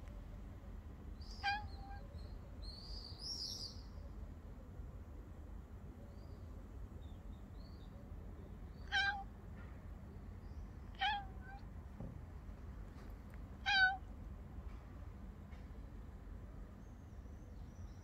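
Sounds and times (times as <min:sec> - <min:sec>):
cat meowing: 0:01.4 - 0:02.1, 0:08.8 - 0:09.3, 0:10.9 - 0:11.6, 0:13.6 - 0:14.1.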